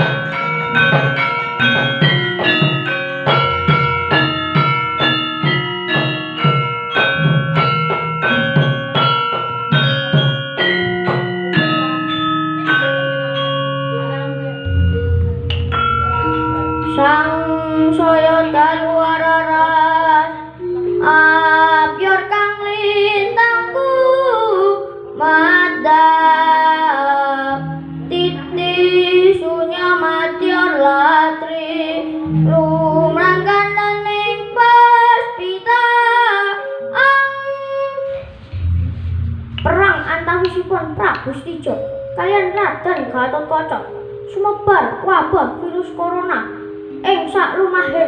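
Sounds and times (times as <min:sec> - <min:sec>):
metallophone tones: 0:00.0 - 0:48.0
deep gong tones: 0:14.6 - 0:21.9, 0:38.0 - 0:44.4
child singing: 0:16.9 - 0:38.2, 0:39.7 - 0:48.0.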